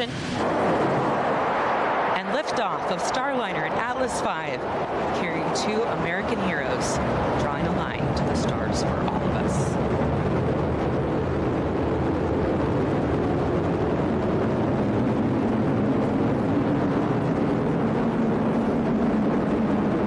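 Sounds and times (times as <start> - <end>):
rocket exhaust low rumble: 0.0 - 20.0.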